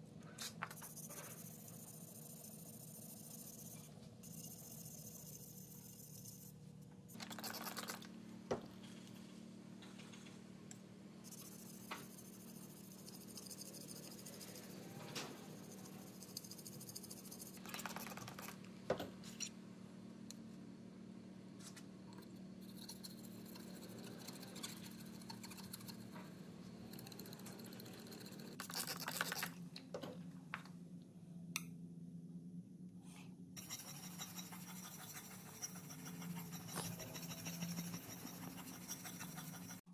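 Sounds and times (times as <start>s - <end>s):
steady low hum: 0.0s - 39.9s
blade scraping on sharpening stone: 33.6s - 39.8s.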